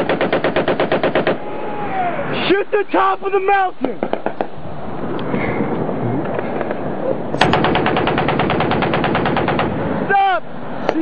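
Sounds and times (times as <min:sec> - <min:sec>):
machine gun firing a burst: 0:00.0 - 0:01.4, 0:07.4 - 0:09.8.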